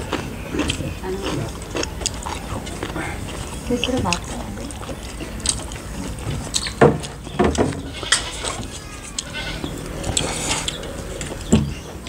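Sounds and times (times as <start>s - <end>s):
goat bleating: 7.9s - 10.1s.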